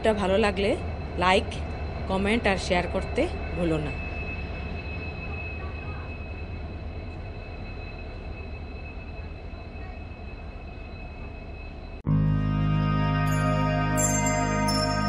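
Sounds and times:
high whine: 11.8s - 15.0s.

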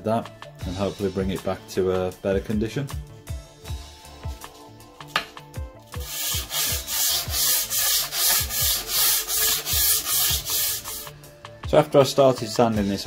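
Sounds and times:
metal rasping on sandpaper: 6.0s - 11.1s.

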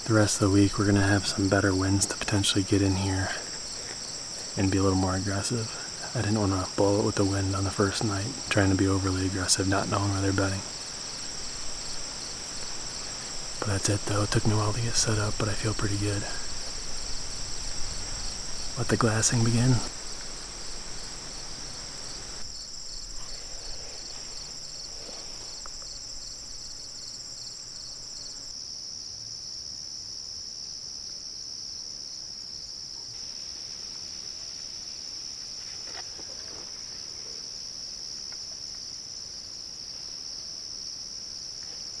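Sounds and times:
insect chorus trilling: 0.0s - 42.0s
insect chirping in quick pulses: 9.9s - 28.5s.

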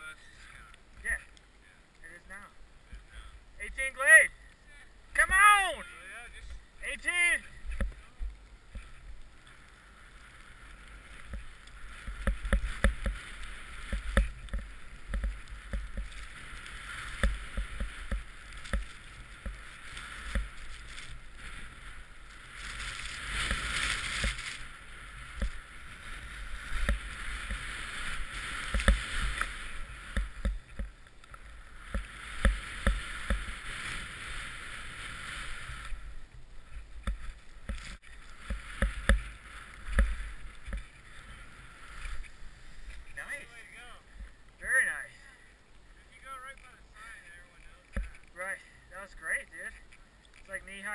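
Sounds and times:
powder snow spraying hiss: 8.9s - 30.4s, 31.4s - 36.7s, 37.5s - 45.2s.

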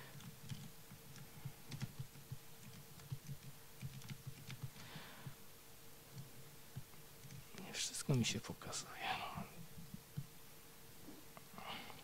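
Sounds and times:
low steady hum: 0.0s - 12.0s
computer keyboard clicking: 0.1s - 4.8s, 7.2s - 7.6s.

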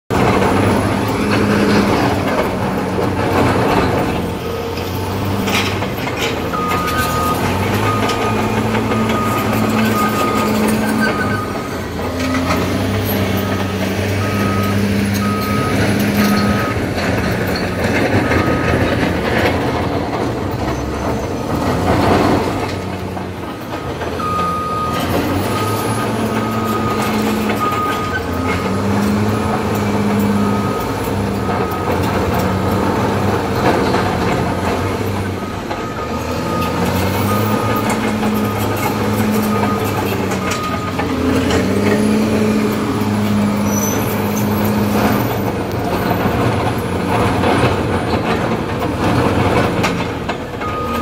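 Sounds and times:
heavy machinery diesel engines running: 0.0s - 51.0s
reversing alarm beeping: 6.5s - 19.1s, 24.2s - 45.6s, 50.6s - 51.0s.

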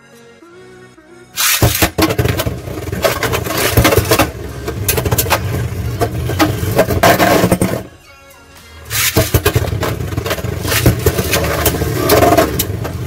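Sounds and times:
spinning tops clashing clicks: 1.4s - 2.0s
spinning tops scraping and whirring: 1.4s - 7.8s, 8.9s - 13.0s.

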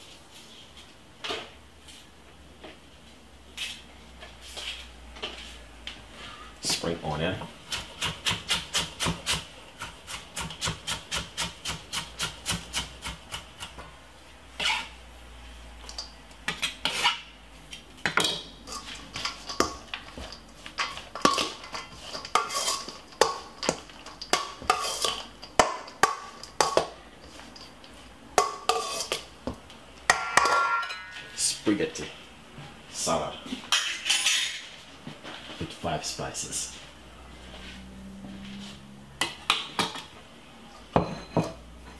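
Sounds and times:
metal spoon clinking in bowl: 30.1s - 31.2s.

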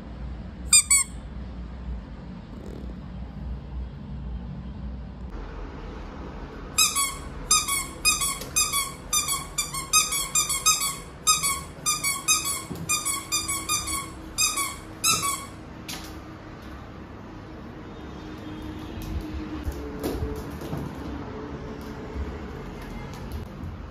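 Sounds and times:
rubber dog toy squeaking: 0.7s - 1.2s, 6.8s - 15.6s.

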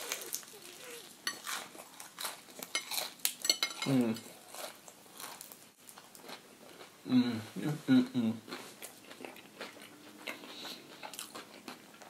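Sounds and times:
crunching crispy chicken skin: 0.0s - 3.4s.

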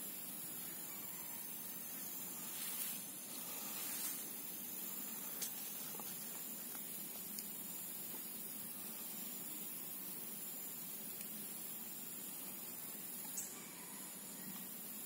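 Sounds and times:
steady background hiss: 0.0s - 15.0s
faint ticks: 5.3s - 7.5s, 11.1s - 11.4s.

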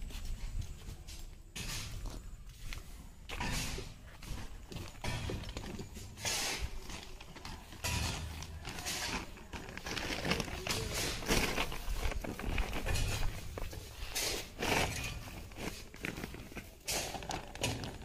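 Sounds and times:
hands working in crushed ice: 6.1s - 18.0s.

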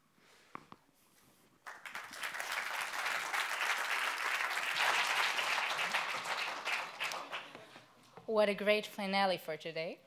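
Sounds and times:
audience applauding: 1.6s - 7.9s.

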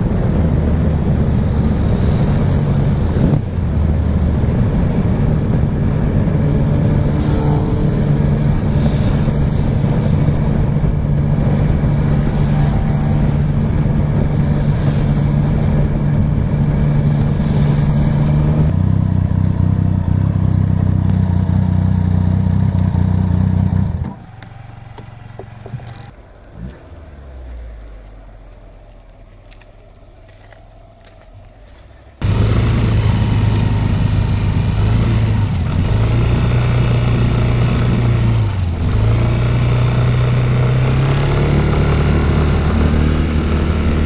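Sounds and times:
wind rushing past microphone: 0.0s - 18.8s
faint low rumbles: 0.0s - 36.4s
scooter engine running: 18.7s - 44.0s.

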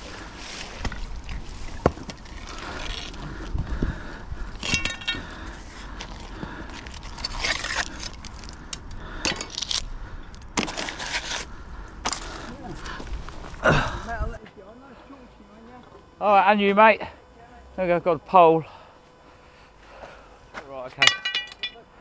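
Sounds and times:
short ringing metal clink: 21.0s - 21.8s.

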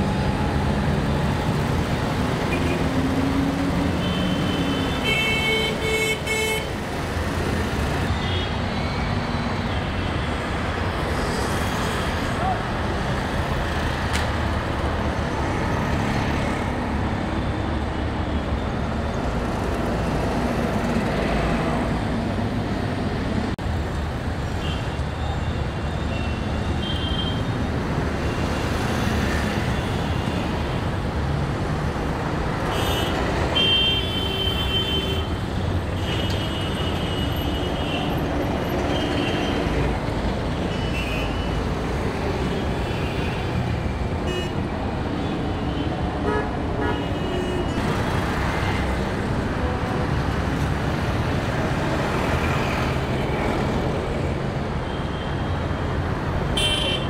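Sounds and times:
cars and trucks passing: 0.0s - 57.0s
vehicle horns honking: 56.6s - 57.0s.

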